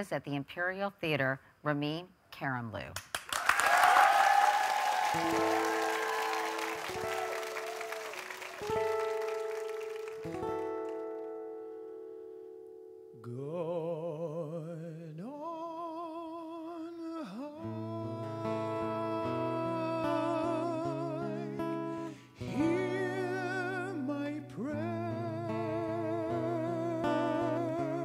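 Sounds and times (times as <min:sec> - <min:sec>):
acoustic guitar: 0:05.1 - 0:28.0
man singing with vibrato: 0:13.2 - 0:28.0.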